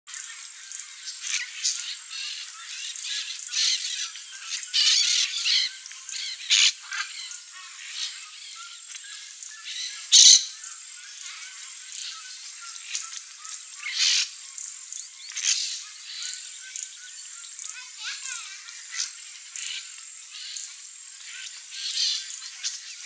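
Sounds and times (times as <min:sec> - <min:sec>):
parakeets squawking and chattering: 0:01.2 - 0:08.6, 0:09.6 - 0:10.5, 0:11.2 - 0:14.4, 0:17.5 - 0:19.8.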